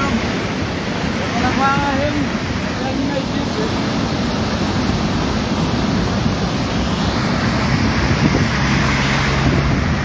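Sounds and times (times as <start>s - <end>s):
flooded river roaring: 0.0s - 10.0s
wind buffeting microphone: 3.6s - 10.0s.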